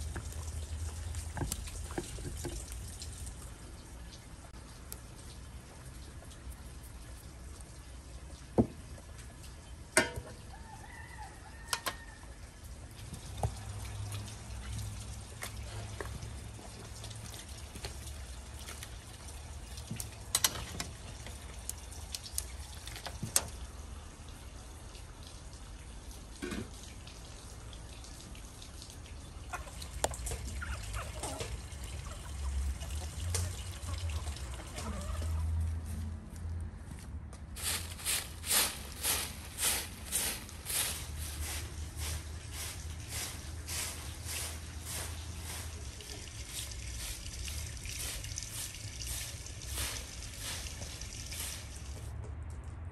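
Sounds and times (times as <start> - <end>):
pot simmering: 0.0 - 24.4, 37.6 - 52.1
metal ladle clinking on pot: 10.0 - 10.4
chickens clucking: 29.2 - 35.7.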